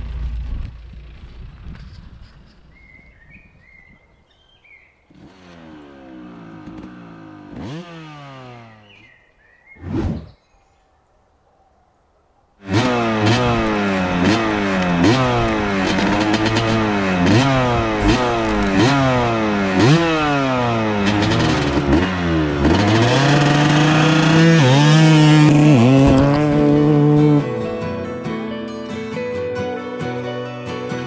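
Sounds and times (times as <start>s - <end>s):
wheel spinning in dirt: 0.0s - 2.3s, 12.7s - 27.4s
motorcycle engine revving: 5.1s - 9.1s, 12.6s - 28.5s.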